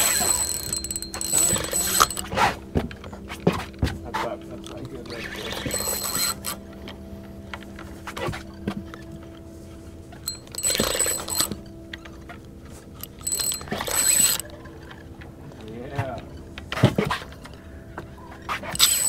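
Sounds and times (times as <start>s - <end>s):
fishing reel whirring: 0.0s - 2.4s, 5.0s - 6.7s, 10.2s - 11.7s, 13.0s - 15.0s, 18.6s - 19.0s
steady low hum: 0.0s - 19.0s.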